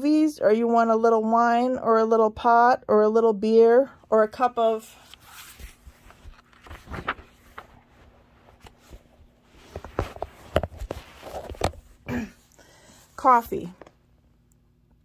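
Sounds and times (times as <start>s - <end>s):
book page turning: 4.6s - 12.0s
soft rustles and knocks: 5.1s - 12.0s.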